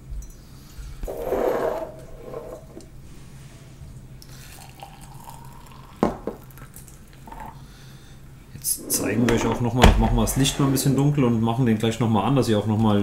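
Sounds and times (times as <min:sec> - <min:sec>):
water pouring into a glass: 0:04.4 - 0:06.7.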